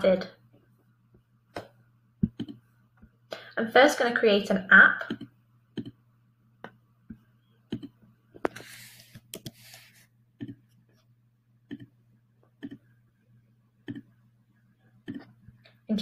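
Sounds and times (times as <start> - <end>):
computer mouse clicking: 2.2 - 2.6, 5.1 - 6.0, 7.7 - 9.7, 10.4 - 10.6, 11.7 - 11.9, 12.6 - 12.8.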